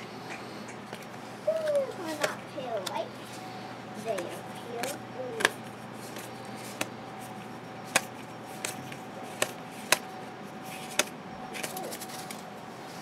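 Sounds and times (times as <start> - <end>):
faint steady hum: 0.0 - 13.0
cards snapping off a stack: 10.9 - 11.8.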